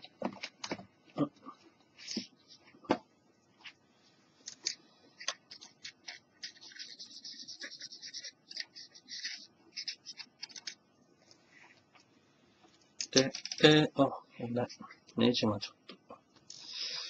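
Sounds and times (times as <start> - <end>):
plastic clicks and scratching: 4.4 - 10.8, 13.0 - 13.8.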